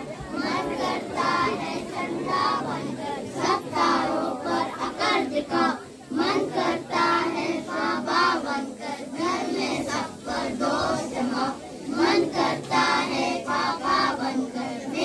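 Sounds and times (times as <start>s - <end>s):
young children singing: 0.0s - 15.0s.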